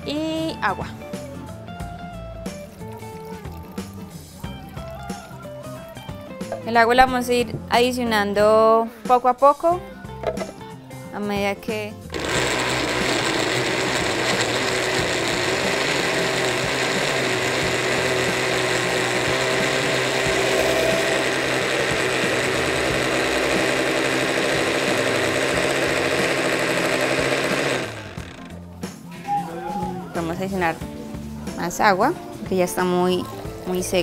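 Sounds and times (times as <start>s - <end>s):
blender motor running: 12.0s - 28.7s.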